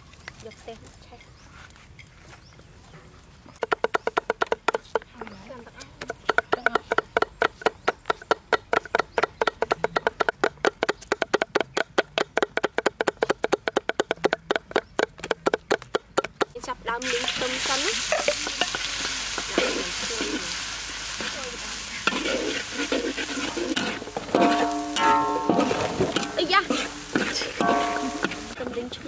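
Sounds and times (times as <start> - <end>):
cleavers chopping on wooden block: 3.5 - 5.3, 6.0 - 16.6
food sizzling in hot oil: 17.0 - 29.0.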